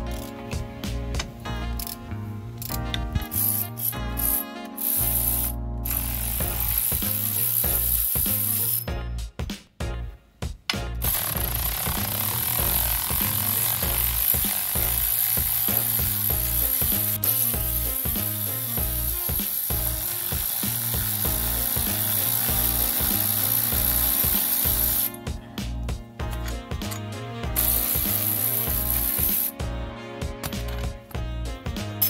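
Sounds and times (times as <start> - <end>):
background music with steady beat: 0.0 - 32.0
ratchet wrench clicking: 2.6 - 8.9, 11.0 - 25.2, 27.6 - 29.5.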